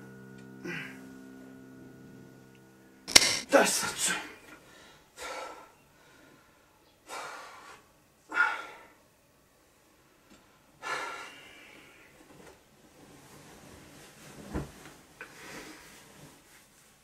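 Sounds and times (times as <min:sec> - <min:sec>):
man breathing heavily in sleep: 0:04.6 - 0:09.0, 0:10.8 - 0:12.2.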